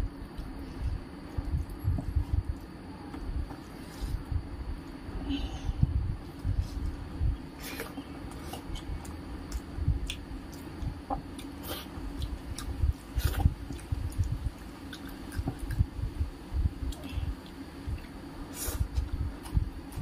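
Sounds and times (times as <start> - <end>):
close-up chewing: 7.6 - 16.0.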